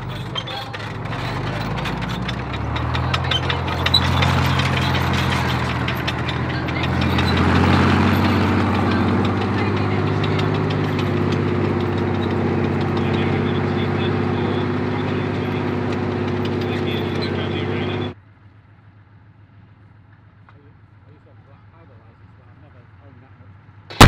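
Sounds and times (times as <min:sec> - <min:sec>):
steel tracks clicking: 0:00.0 - 0:18.2
tank diesel engine: 0:00.0 - 0:24.0.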